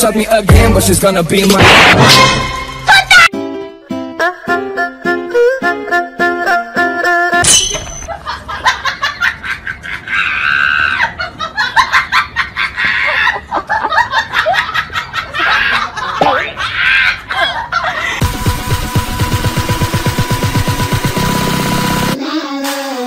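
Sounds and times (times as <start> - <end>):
music: 0.0 - 7.4, 18.2 - 23.0
person laughing: 8.1 - 18.2.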